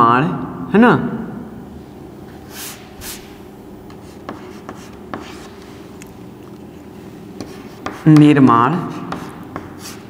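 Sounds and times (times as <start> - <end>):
chalk scratching on chalkboard: 2.5 - 3.3, 3.9 - 5.8, 7.4 - 10.0
chalk tapping on board: 3.9 - 5.6, 7.4 - 10.0.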